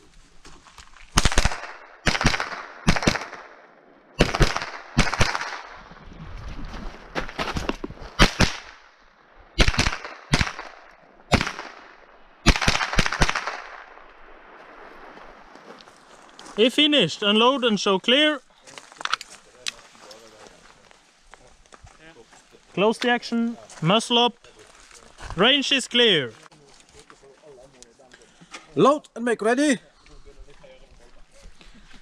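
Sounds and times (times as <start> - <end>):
rifle shots: 1.2 - 5.8, 8.2 - 8.9, 9.6 - 14.4.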